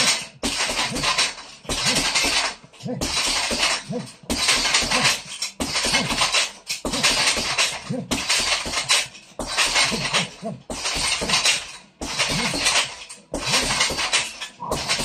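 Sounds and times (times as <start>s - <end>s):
chain rattling: 0.0s - 15.0s
punching bag being hit: 0.0s - 15.0s
person grunting: 2.8s - 3.2s, 3.8s - 6.2s, 7.0s - 8.3s, 9.8s - 10.7s.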